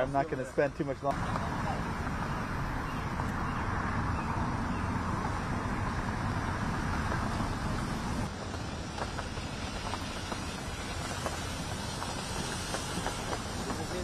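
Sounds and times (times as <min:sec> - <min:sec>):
road traffic hum: 0:00.0 - 0:14.0.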